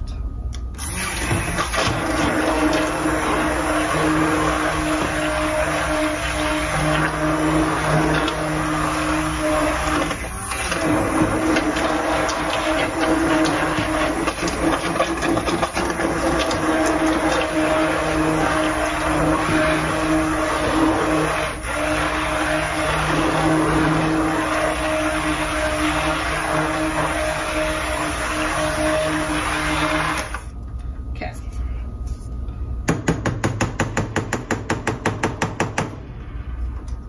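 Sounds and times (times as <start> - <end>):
immersion blender motor humming: 0.9 - 30.4.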